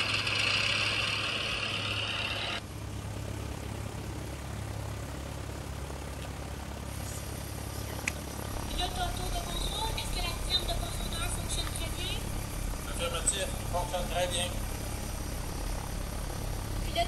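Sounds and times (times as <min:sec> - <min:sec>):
propeller motor humming: 0:00.0 - 0:17.0.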